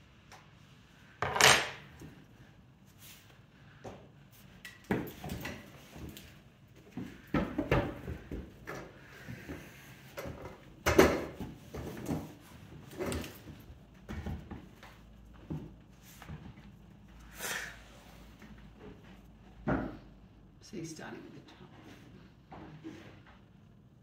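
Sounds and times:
tools knocking and clattering: 0:01.2 - 0:02.1, 0:04.6 - 0:06.2, 0:10.2 - 0:14.8.

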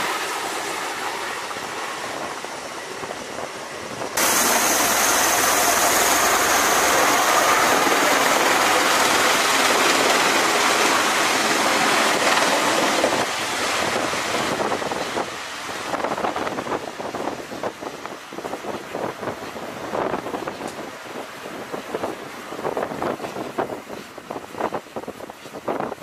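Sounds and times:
high engine whine: 0:00.0 - 0:15.2
aircraft engines and rotors running: 0:00.0 - 0:26.0.

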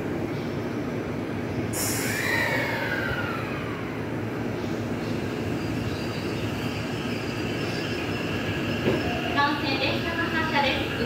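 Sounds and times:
electric train hum: 0:00.0 - 0:11.0
sudden loud hiss: 0:01.7 - 0:07.1
whine falling in pitch: 0:01.8 - 0:10.2.

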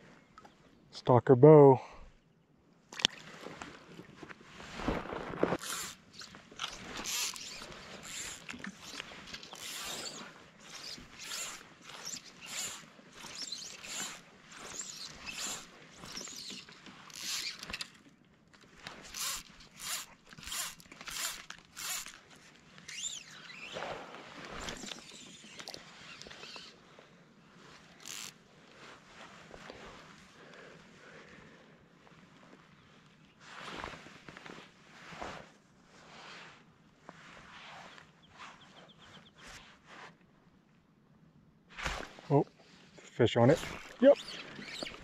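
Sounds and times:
fly line rasping through rod guides: 0:05.6 - 0:23.8, 0:24.4 - 0:26.8, 0:27.8 - 0:28.4, 0:43.6 - 0:45.0.

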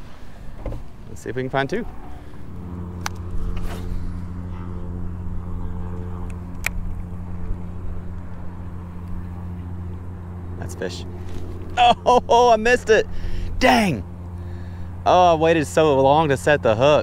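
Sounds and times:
electric trolling motor humming: 0:00.0 - 0:17.0.

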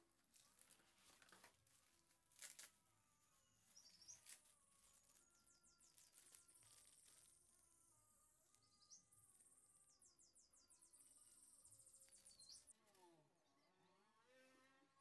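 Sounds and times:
plastic bag rustling: 0:00.0 - 0:02.8, 0:03.6 - 0:07.6
faint chirping: 0:03.1 - 0:12.8.

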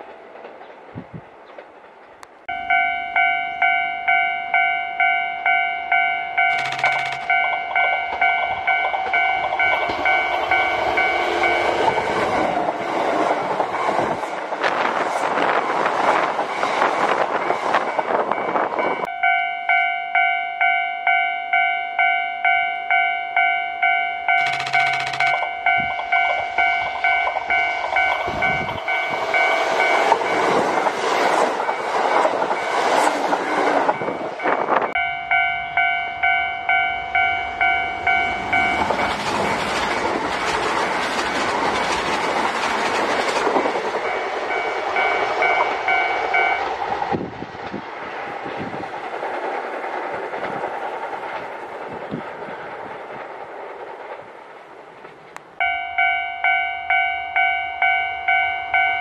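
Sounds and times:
train wheels clattering: 0:00.0 - 0:02.5, 0:06.4 - 0:19.0, 0:24.3 - 0:35.0, 0:37.2 - 0:55.7
level-crossing alarm clanging: 0:02.5 - 0:12.8, 0:16.3 - 0:33.1, 0:33.8 - 0:42.5, 0:43.2 - 0:46.8, 0:55.6 - 0:59.0.

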